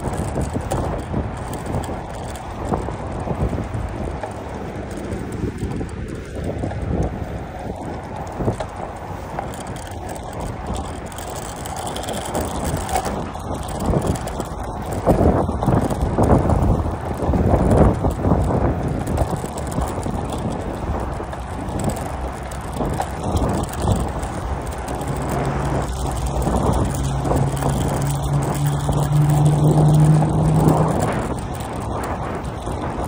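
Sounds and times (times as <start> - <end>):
bicycle tyre noise on pavement: 0.0 - 33.0
wind buffeting microphone: 0.0 - 33.0
low hum rising in pitch: 25.2 - 32.0.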